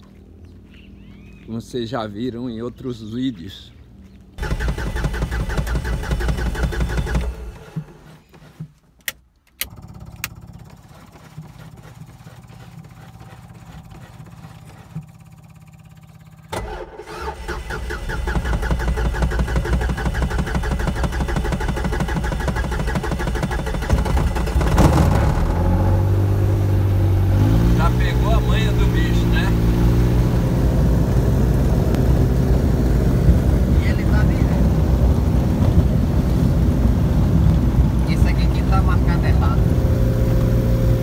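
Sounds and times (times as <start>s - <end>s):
ultralight aircraft engine running: 9.6s - 41.0s.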